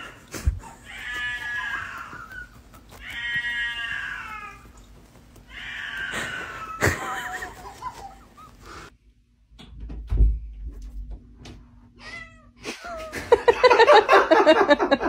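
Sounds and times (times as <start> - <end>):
cat yowling: 0.0 - 8.0.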